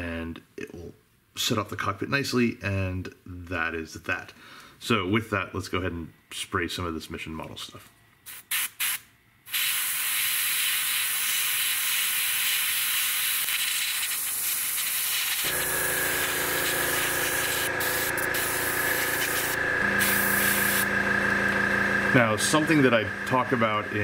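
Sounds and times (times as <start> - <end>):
airbrush hissing: 8.3 - 20.9
air compressor humming: 13.5 - 24.0.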